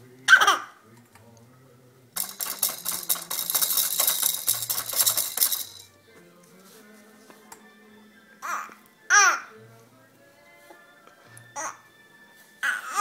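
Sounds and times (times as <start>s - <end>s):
plastic toy rattling: 2.2s - 5.9s.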